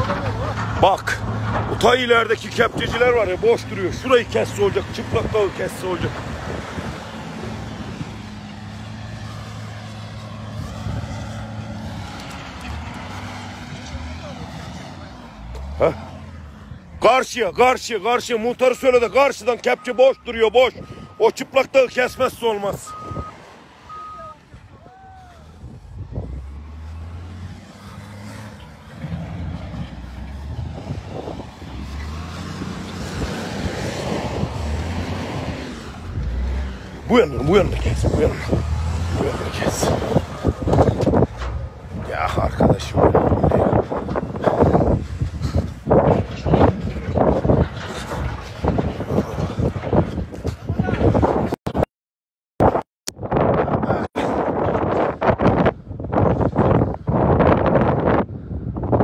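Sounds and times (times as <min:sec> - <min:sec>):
low engine hum: 0:00.0 - 0:17.0, 0:22.4 - 0:51.0
wind rushing: 0:22.9 - 0:51.6, 0:52.7 - 0:59.0.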